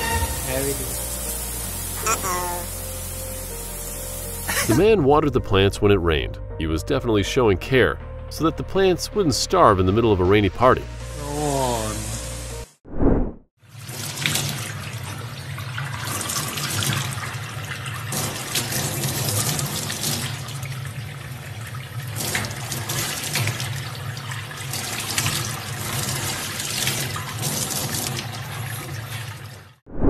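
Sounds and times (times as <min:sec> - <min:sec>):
faucet water splashing into sink: 0:13.7 - 0:29.6.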